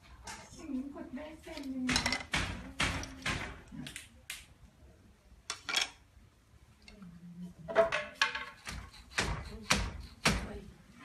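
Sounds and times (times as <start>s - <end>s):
wooden loom clacking: 1.6s - 3.6s, 7.7s - 10.6s.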